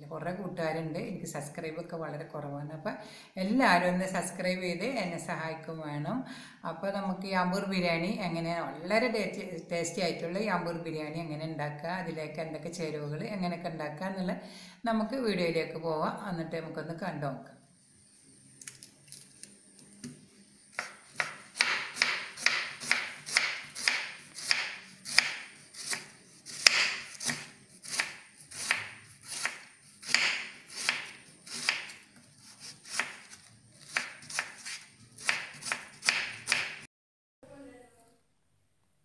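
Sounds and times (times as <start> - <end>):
knife chopping on wooden board: 20.7 - 36.8.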